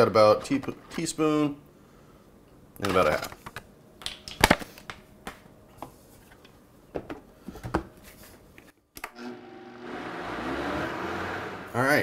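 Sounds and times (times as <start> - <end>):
blender motor running: 9.1 - 11.8.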